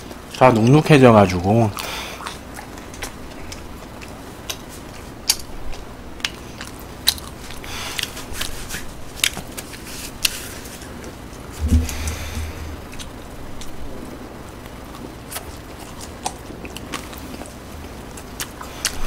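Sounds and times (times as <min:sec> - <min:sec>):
chewing with wet mouth clicks: 0:01.7 - 0:08.6, 0:14.6 - 0:19.0
short low hum: 0:11.5 - 0:14.2.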